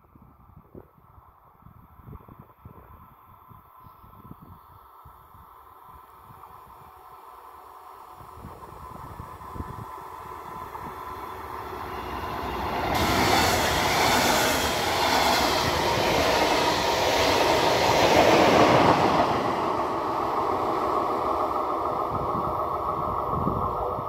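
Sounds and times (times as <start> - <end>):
train passing at speed: 5.7 - 24.0.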